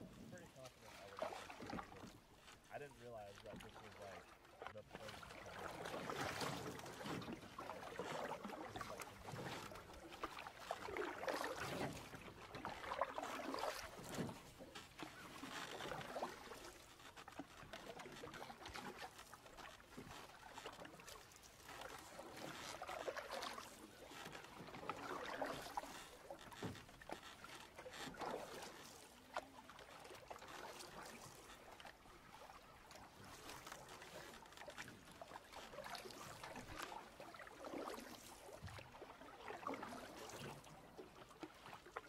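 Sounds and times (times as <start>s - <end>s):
paddle strokes in water: 0.0s - 42.0s
water splashing and trickling: 0.0s - 42.0s.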